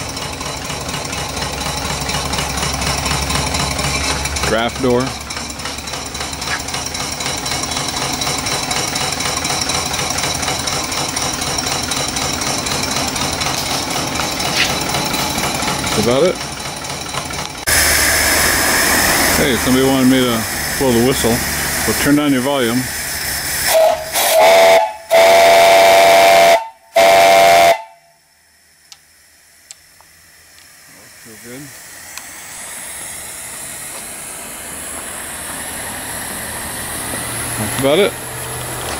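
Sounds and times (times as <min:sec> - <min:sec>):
steam engine knocking: 0:00.0 - 0:26.4, 0:31.2 - 0:38.9
steam hissing: 0:01.4 - 0:28.0, 0:28.7 - 0:38.9
steam whistle blasts: 0:23.5 - 0:28.4.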